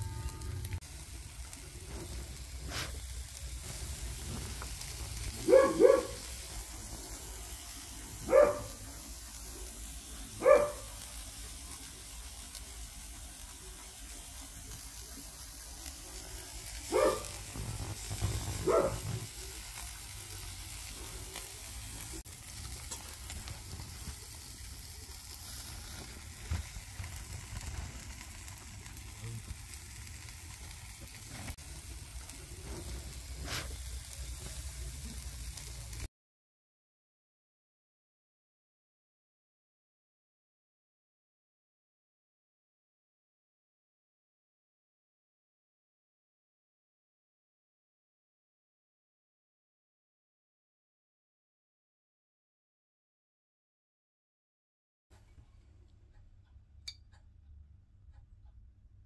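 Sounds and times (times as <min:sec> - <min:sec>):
food sizzling on a grill: 0:00.0 - 0:36.1
dog barking: 0:05.4 - 0:06.3, 0:08.2 - 0:08.8, 0:10.4 - 0:11.0, 0:16.9 - 0:17.4, 0:18.6 - 0:19.1.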